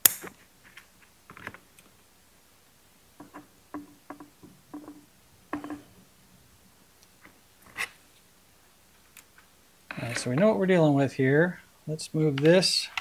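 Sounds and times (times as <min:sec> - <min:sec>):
hand tools clicking and tapping: 0:03.2 - 0:05.9.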